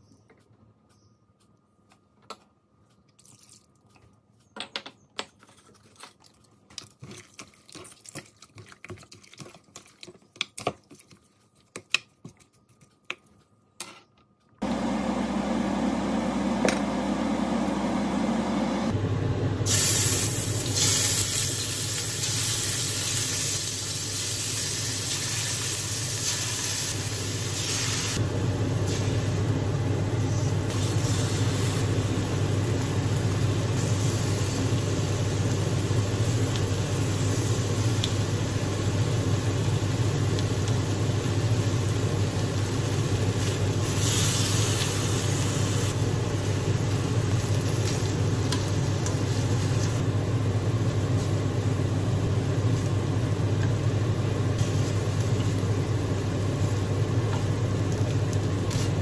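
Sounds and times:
low hum: 14.6 - 19.7
chicken sizzling in hot oil: 19.7 - 29.6, 30.2 - 50.0.

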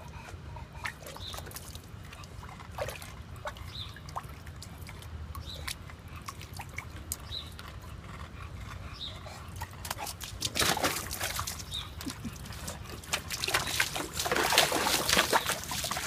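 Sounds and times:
water splashing in a pool: 0.9 - 7.3, 9.9 - 16.0.

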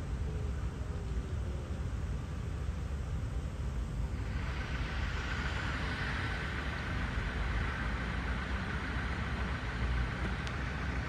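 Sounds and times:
low rumble of distant traffic: 0.0 - 11.0
high-pitched hum: 3.3 - 11.0
faint click: 10.2 - 10.6.

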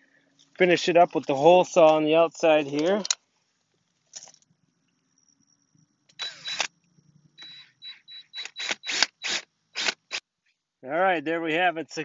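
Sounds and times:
faint high motor whine: 0.0 - 12.0
drill with hole saw: 6.1 - 6.7, 7.4 - 10.2.

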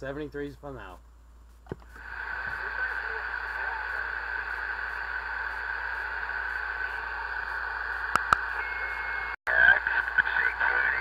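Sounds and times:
radio static hiss: 0.7 - 11.0
faint steady whistle: 8.5 - 9.4.

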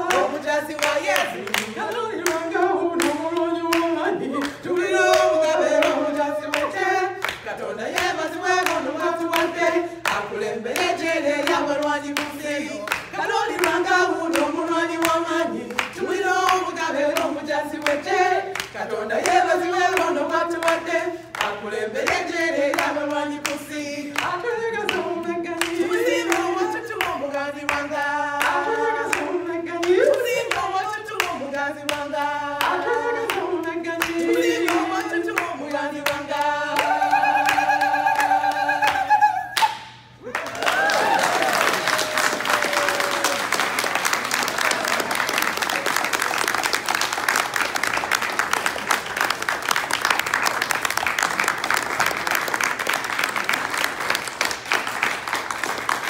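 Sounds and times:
women singing together: 0.0 - 43.4
hand clapping: 36.8 - 56.0.

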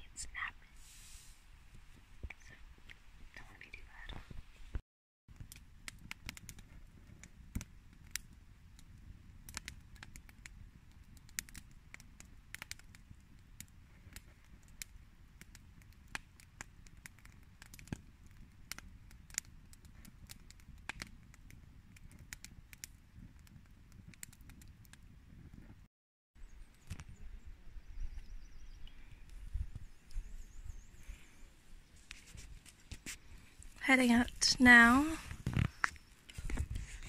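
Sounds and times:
campfire crackling and popping: 5.3 - 25.8, 28.3 - 37.0.

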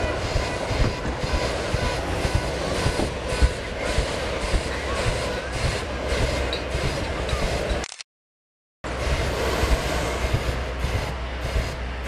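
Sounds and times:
faint crowd voices: 0.0 - 7.8.

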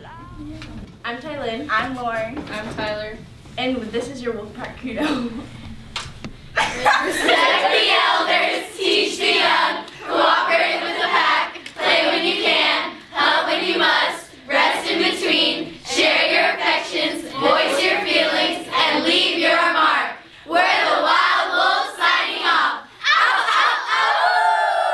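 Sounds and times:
students chanting in unison: 7.3 - 24.9
loud group shout: 23.0 - 24.9.

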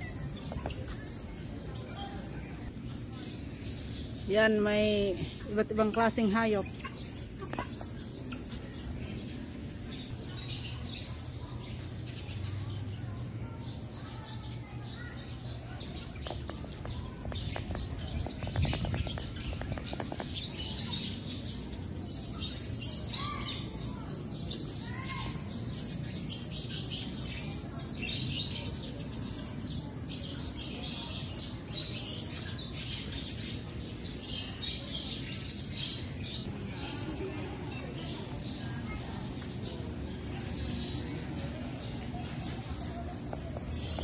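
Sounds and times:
birds chirping: 0.0 - 44.0
high-pitched insect drone: 29.8 - 44.0.

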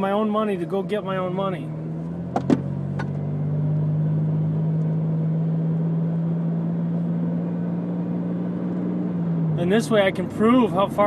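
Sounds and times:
car engine hum: 0.0 - 11.0
tyre and road noise: 1.9 - 5.2.

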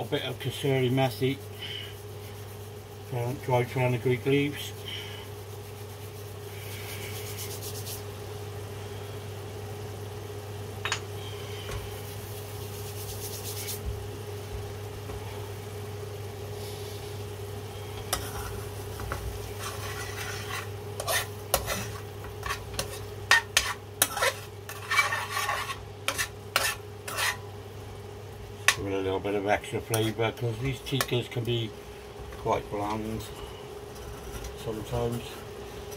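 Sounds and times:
steady low hum: 0.0 - 35.9
wooden spoon scraping a pan: 18.0 - 27.4.

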